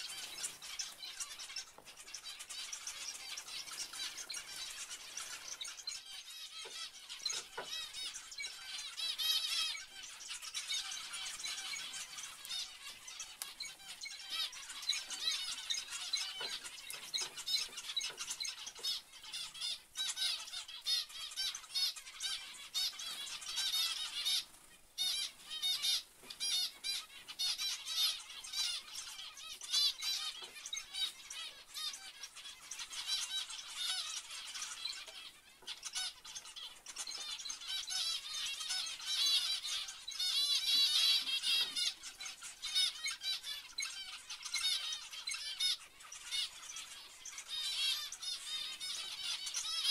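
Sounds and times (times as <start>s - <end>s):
finches chattering: 0.0s - 49.9s.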